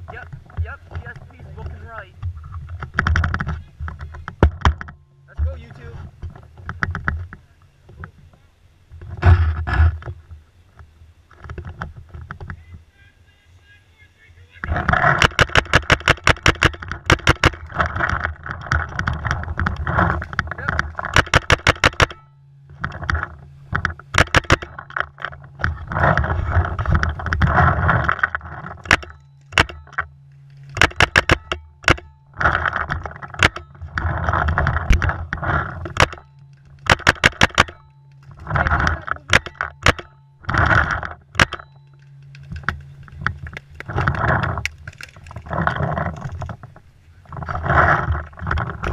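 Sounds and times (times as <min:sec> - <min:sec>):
paintball marker firing: 0:21.1 - 0:22.2, 0:36.8 - 0:37.8
gear rattling as player moves: 0:22.8 - 0:48.9.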